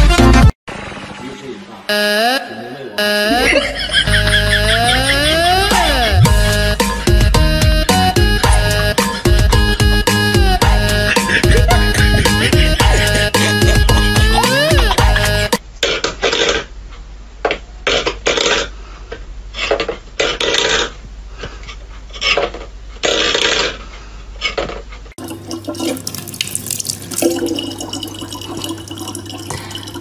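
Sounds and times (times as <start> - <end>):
water running into plastic bottle: 25.2 - 30.0.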